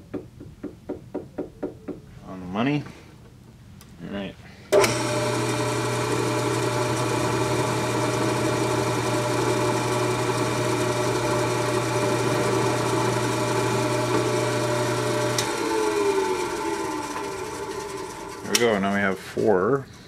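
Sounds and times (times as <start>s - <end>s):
milling machine spindle running: 4.8s - 19.0s.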